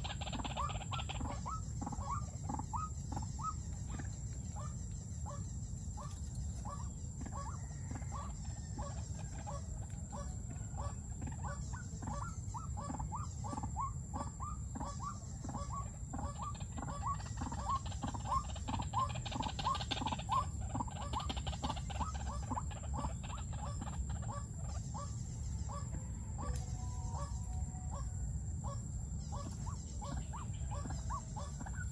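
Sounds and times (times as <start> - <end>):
bird calling repeated notes: 10.8 - 31.9.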